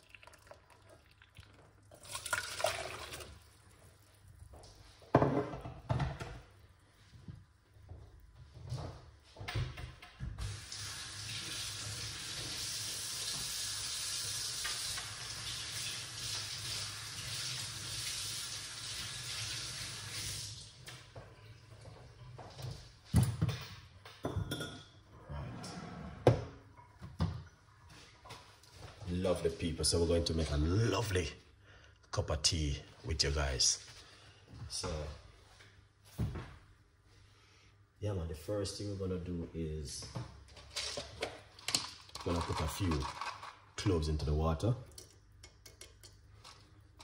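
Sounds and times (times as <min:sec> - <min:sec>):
water poured into saucepan: 0:00.0 - 0:04.4, 0:10.5 - 0:20.8, 0:41.7 - 0:44.0.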